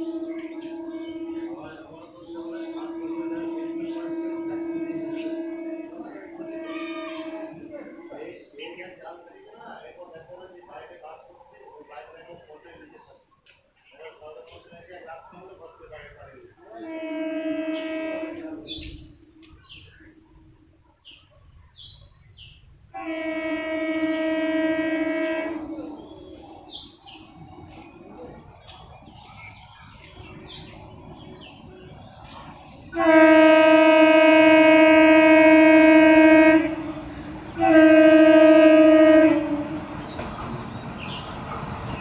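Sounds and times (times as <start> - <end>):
train horn: 0.0 - 8.3, 16.6 - 20.4, 22.9 - 26.6, 29.9 - 40.2
birds chirping: 0.0 - 42.0.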